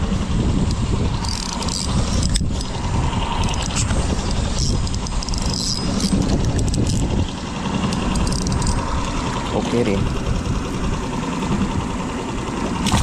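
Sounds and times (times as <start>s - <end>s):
steady low rumble: 0.0s - 13.0s
light reel clicks: 0.6s - 2.8s, 3.4s - 9.2s
fishing reel cranking: 0.7s - 9.2s.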